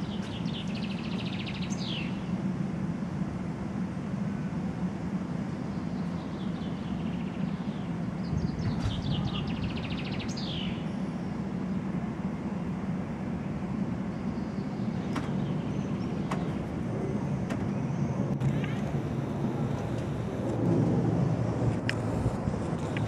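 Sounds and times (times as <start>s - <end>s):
jet airliner rumble: 0.0s - 23.0s
bird chirping: 6.2s - 10.8s.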